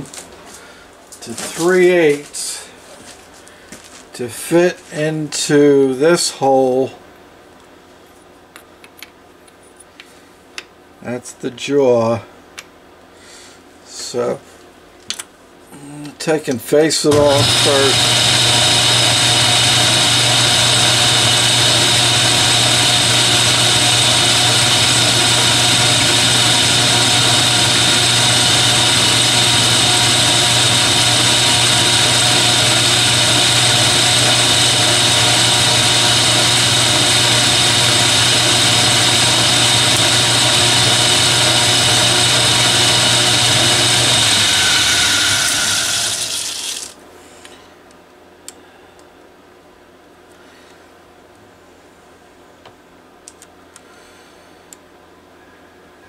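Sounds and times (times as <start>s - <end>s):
metal lathe humming and whining: 17.1s - 46.9s.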